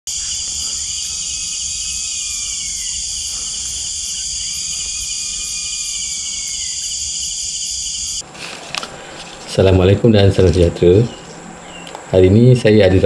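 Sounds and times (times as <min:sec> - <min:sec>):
long whistled calls: 0:00.0 - 0:08.2
crickets chirping: 0:00.0 - 0:08.3, 0:08.9 - 0:13.0.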